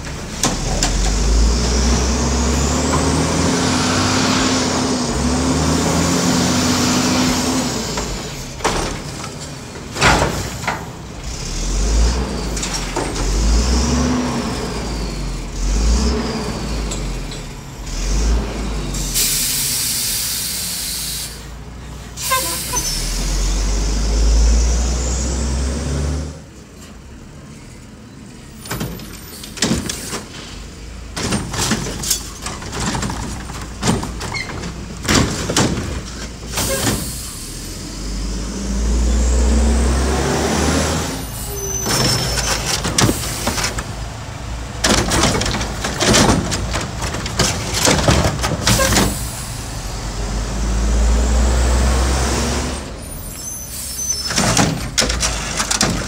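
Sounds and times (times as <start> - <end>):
carts clanking and banging: 0.0 - 4.1, 7.3 - 14.6, 28.5 - 37.6, 41.2 - 49.6, 53.2 - 56.0
truck engine revving: 0.0 - 9.2, 9.8 - 20.4, 22.2 - 26.5, 30.9 - 53.3
air brakes hissing: 18.9 - 23.8, 36.5 - 38.2, 41.0 - 43.9, 48.6 - 49.9, 52.9 - 54.5.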